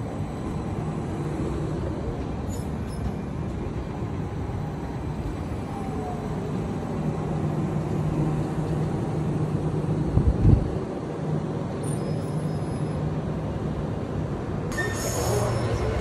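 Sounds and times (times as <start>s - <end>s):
station noise: 14.7s - 16.0s.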